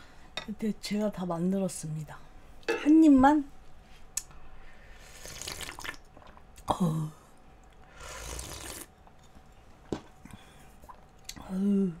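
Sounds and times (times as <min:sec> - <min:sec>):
person drinking soup: 0:05.2 - 0:06.8, 0:08.1 - 0:08.9.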